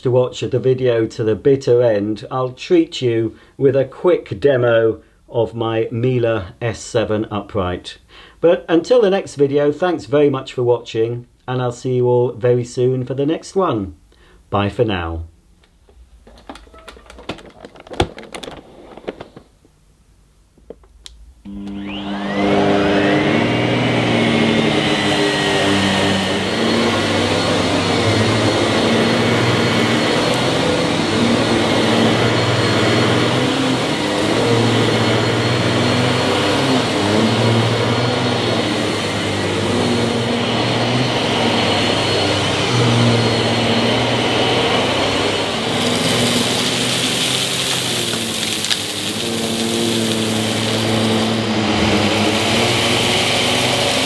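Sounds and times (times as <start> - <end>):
vacuum cleaner motor: 21.4 - 54.0
vacuum sucking up debris hiss: 21.4 - 54.0.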